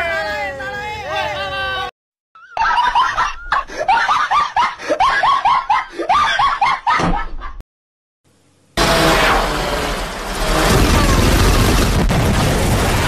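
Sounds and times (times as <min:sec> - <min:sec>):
high-pitched laughter: 0:01.2 - 0:07.6.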